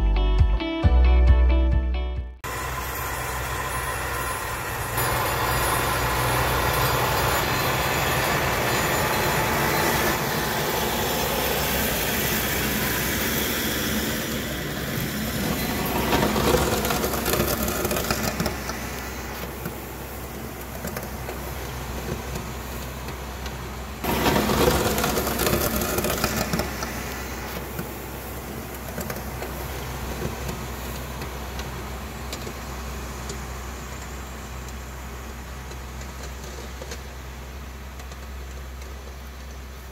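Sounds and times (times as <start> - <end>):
tractor engine droning: 2.4 - 39.9.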